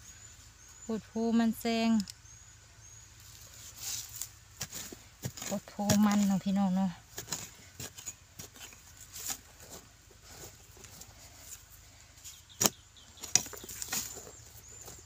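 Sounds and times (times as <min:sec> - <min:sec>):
digging tool scraping soil: 0:03.3 - 0:11.6, 0:12.5 - 0:15.0.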